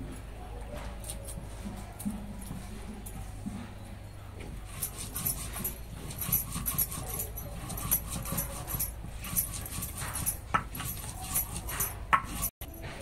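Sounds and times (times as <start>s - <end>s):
blade scraping vegetable peel: 4.6s - 12.5s.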